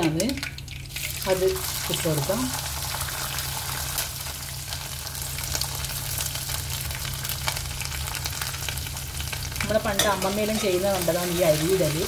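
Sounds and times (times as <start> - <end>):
rice sizzling in hot oil: 0.0 - 12.0.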